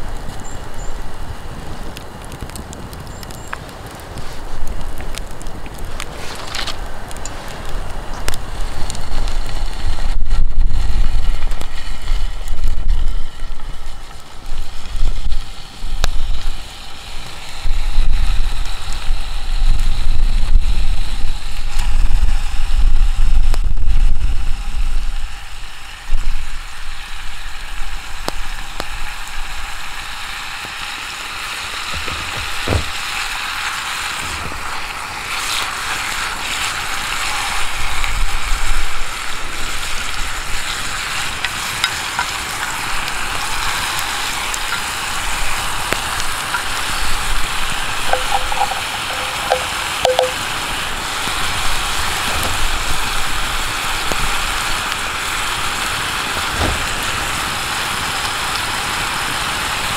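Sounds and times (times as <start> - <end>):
campfire crackling and popping: 0.0 - 59.9
wind buffeting microphone: 6.8 - 13.7, 31.8 - 33.5, 45.1 - 50.4.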